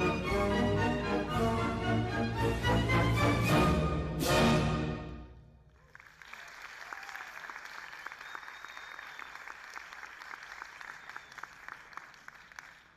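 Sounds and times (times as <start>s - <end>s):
audience applauding: 5.7s - 12.9s.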